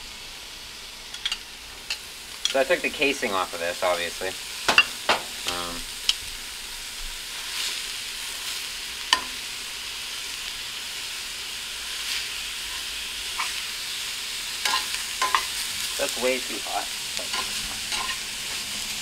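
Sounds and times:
sausage sizzling in a skillet: 0:00.0 - 0:19.0
tongs clicking against pan: 0:14.6 - 0:15.5, 0:17.2 - 0:18.2.

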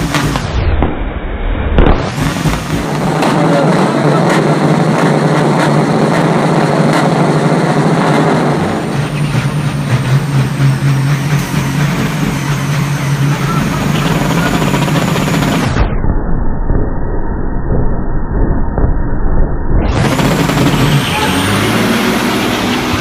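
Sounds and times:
truck diesel engines revving: 0:00.0 - 0:00.6, 0:01.9 - 0:15.8, 0:19.9 - 0:23.0.

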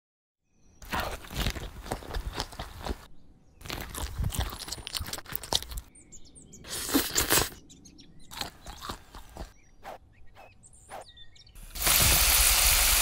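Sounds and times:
birds chirping: 0:00.4 - 0:11.7
crunchy chewing of fried food: 0:00.8 - 0:05.9, 0:06.7 - 0:07.6, 0:08.2 - 0:09.6.

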